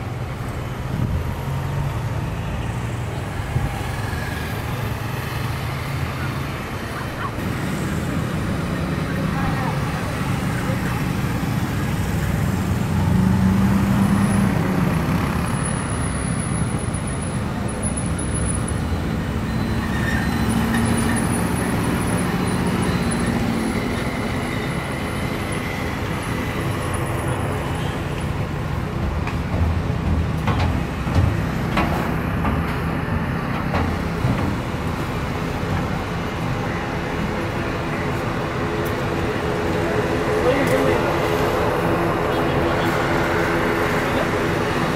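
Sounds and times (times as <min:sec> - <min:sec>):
jet engines rumbling with high whine: 0:15.9 - 0:44.9.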